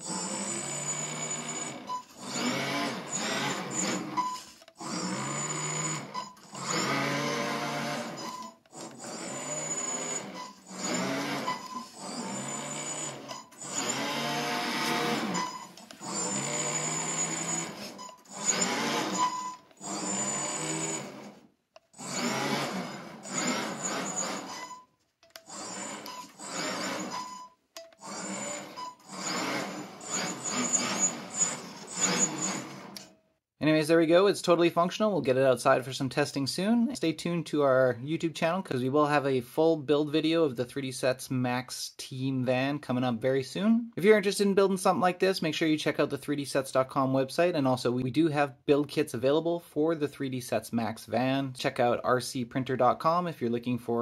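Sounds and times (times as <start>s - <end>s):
rc car drivetrain whining: 0.0s - 21.4s, 22.0s - 24.8s, 25.4s - 33.1s.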